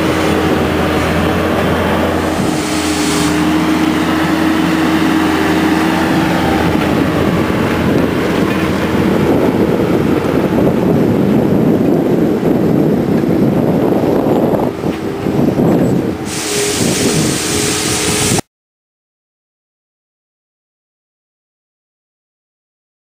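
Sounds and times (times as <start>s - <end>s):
skid steer loader engine running: 0.0s - 18.4s.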